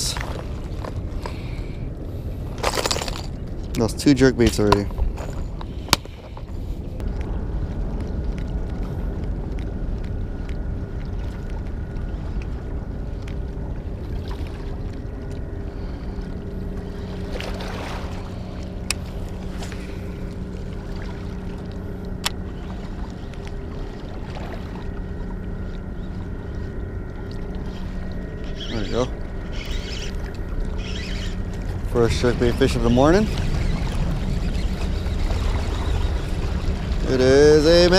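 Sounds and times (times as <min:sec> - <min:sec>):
boat engine droning: 0:00.0 - 0:37.9
wind and water rumble: 0:00.0 - 0:37.9.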